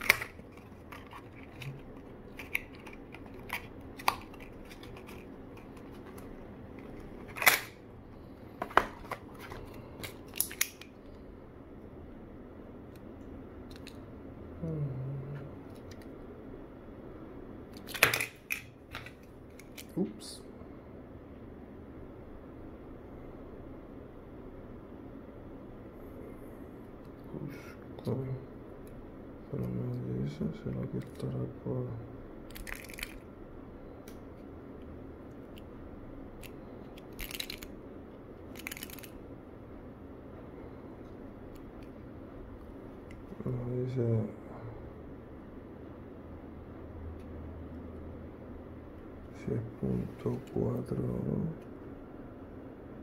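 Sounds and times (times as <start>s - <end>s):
faint background hum: 0.0s - 53.0s.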